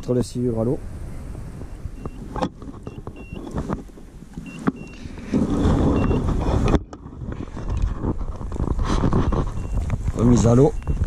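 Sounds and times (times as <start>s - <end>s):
microphone handling rumble: 0.0s - 11.0s
sleeve rubbing on microphone: 2.0s - 11.0s.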